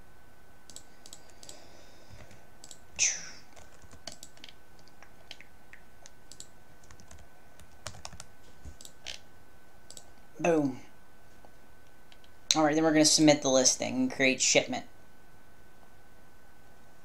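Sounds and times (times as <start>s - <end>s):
mouse clicks: 0.7s - 1.6s, 3.8s - 7.0s, 9.9s - 10.1s
keyboard key presses: 3.5s - 9.2s.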